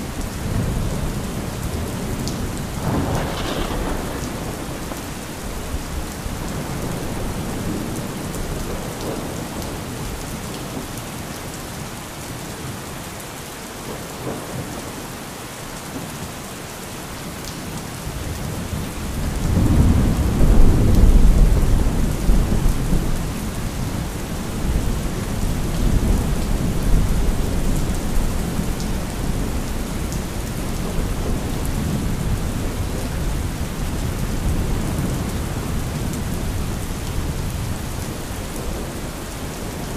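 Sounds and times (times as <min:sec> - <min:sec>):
steady rain falling: 0:00.0 - 0:39.9
thunder rolling: 0:00.5 - 0:09.4.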